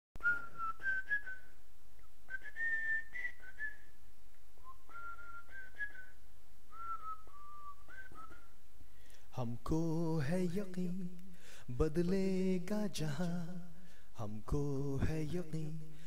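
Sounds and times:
person whistling a melody: 0.2 - 1.6, 2.3 - 4.0, 4.6 - 8.6
low steady hum: 0.2 - 16.0.

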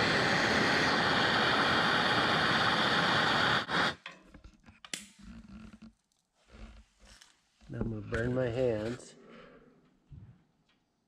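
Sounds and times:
gas torch flame hissing: 0.0 - 4.0.

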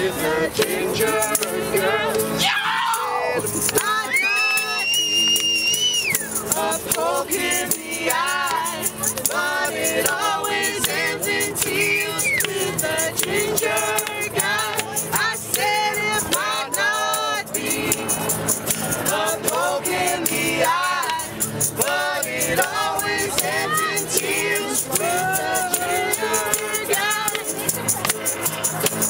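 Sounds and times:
acoustic guitar: 0.0 - 29.0
strummed ukulele: 0.0 - 29.0
tambourine shaking: 0.0 - 29.0
voices singing along: 0.0 - 29.0
hand claps: 3.4 - 4.1, 4.8 - 6.3, 6.9 - 7.2, 10.8 - 15.3, 21.0 - 22.1, 24.8 - 29.0.

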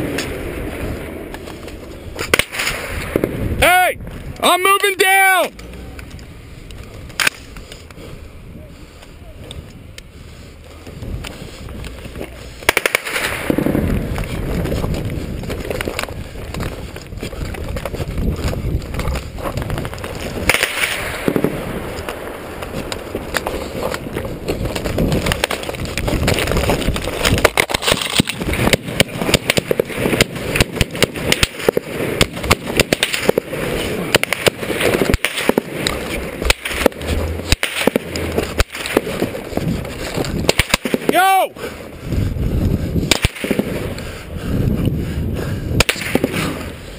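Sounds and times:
gunfire cracks and bursts: 0.0 - 3.5, 12.2 - 41.4, 43.0 - 44.1, 45.8 - 46.8.

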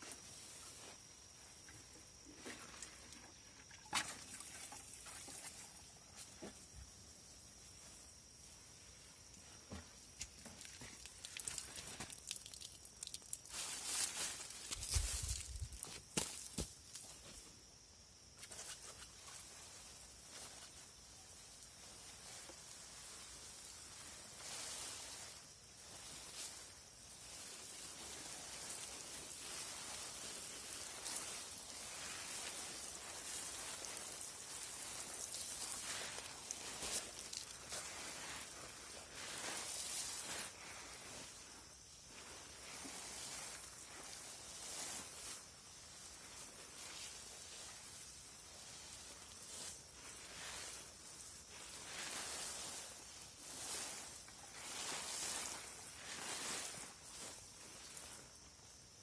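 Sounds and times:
watering can spray patter: 10.4 - 16.6, 23.6 - 40.9.

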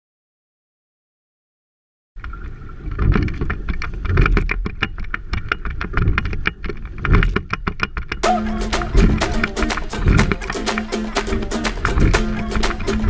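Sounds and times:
wind rumble on microphone: 2.2 - 7.6
oars clattering and knocking: 2.2 - 13.0.

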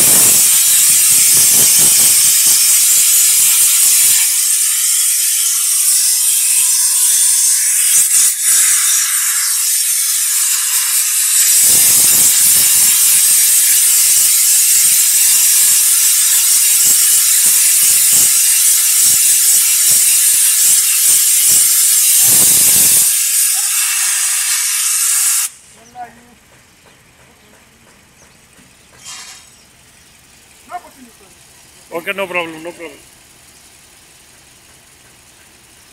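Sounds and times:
compressed air blow gun hissing: 0.0 - 25.8.

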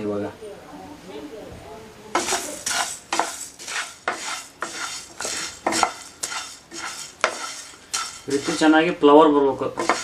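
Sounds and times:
spatula scraping seeds in a pan: 2.1 - 9.0, 9.6 - 10.0.

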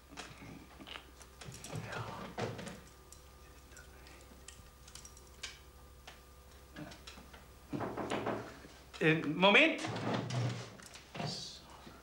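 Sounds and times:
small metal parts clicking: 2.8 - 5.6.

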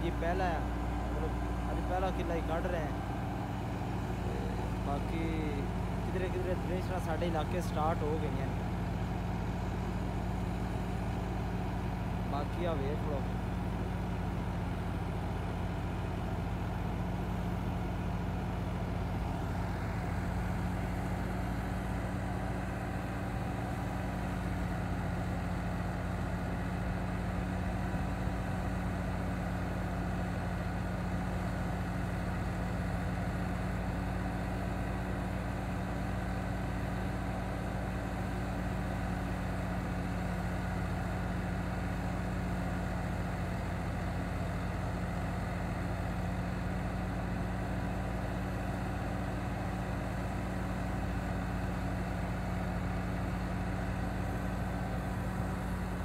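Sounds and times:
thresher running: 0.0 - 13.5
tractor diesel engine running: 0.0 - 56.0.

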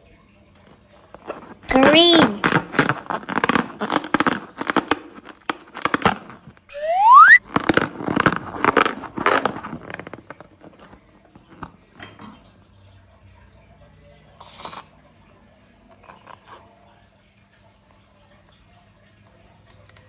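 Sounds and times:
slime wet crackling: 1.0 - 10.8
rubber balloon squeak: 1.7 - 6.1, 6.7 - 9.5.

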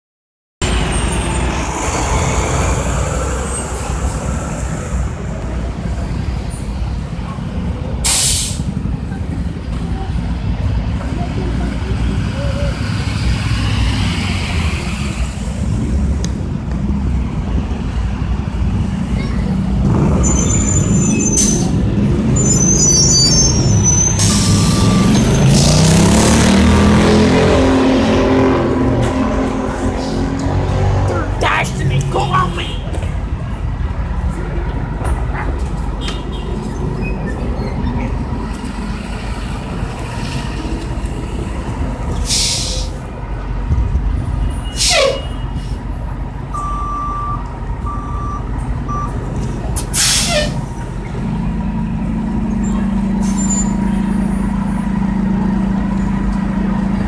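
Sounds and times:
brake squeal: 0.6 - 1.9, 19.1 - 26.2, 36.0 - 39.2, 44.3 - 45.8, 49.8 - 51.2, 52.5 - 56.5
pitched drone rising: 0.6 - 6.0, 24.2 - 32.1
bus engine droning: 0.6 - 57.0
street traffic rumble: 0.6 - 57.0
air brake hiss: 8.0 - 8.7, 42.2 - 42.9, 49.9 - 50.6
air brakes hissing: 8.0 - 8.8, 22.5 - 25.8, 42.1 - 43.0, 44.7 - 45.8, 49.8 - 50.6.

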